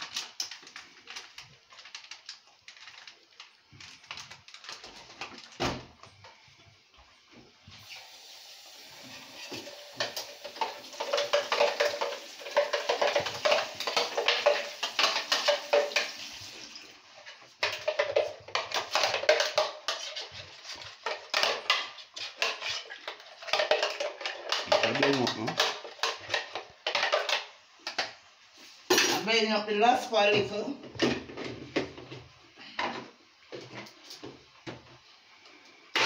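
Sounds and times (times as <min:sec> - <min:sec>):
dishes and utensils clattering: 0:09.0 - 0:28.1, 0:28.9 - 0:29.3.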